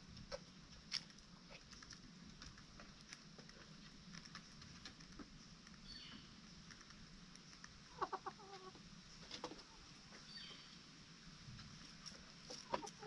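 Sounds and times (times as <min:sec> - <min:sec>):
chicken clucking: 0:07.6 - 0:10.3, 0:12.0 - 0:13.0.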